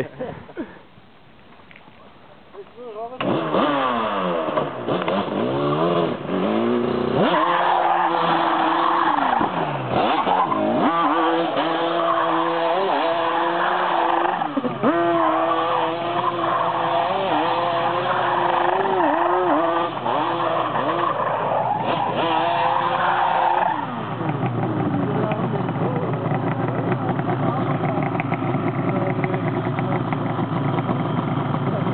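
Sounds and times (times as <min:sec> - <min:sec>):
quad engine revving: 0:03.2 - 0:31.9
tyres squealing on asphalt: 0:05.0 - 0:25.0.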